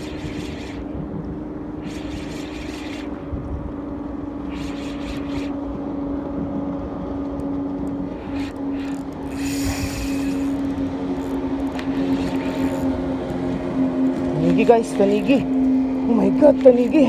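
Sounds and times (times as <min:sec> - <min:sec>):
boat engine running: 0:00.0 - 0:17.0
hissy rushes of wind or water: 0:08.2 - 0:10.7.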